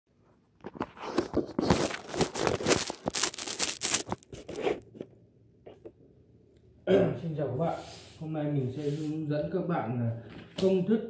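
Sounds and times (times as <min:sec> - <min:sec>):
rustling and crinkling: 0:00.2 - 0:06.0.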